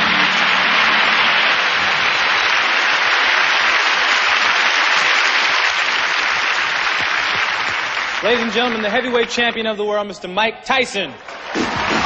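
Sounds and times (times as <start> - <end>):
music: 0.0 - 2.6, 11.6 - 12.0
audience applauding: 0.0 - 9.8, 11.2 - 12.0.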